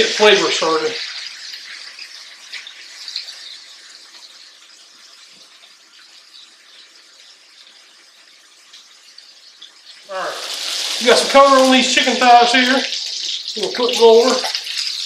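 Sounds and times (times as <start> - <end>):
chicken frying in oil: 0.0 - 15.0.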